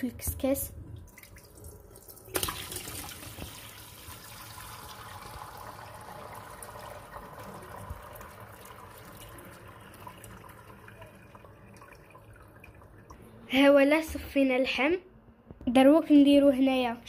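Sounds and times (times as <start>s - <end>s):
liquid trickling through holes: 0.9s - 13.3s.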